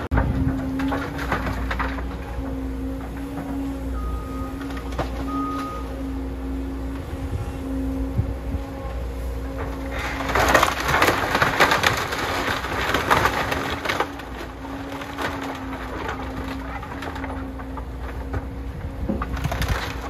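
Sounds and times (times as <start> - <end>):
timber cracking and splintering: 0.0 - 3.8, 9.5 - 20.0
excavator diesel engine running: 0.0 - 20.0.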